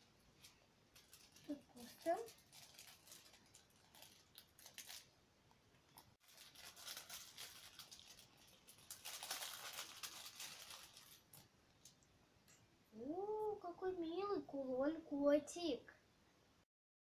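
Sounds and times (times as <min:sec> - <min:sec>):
plastic bag crinkling: 0:00.4 - 0:12.0.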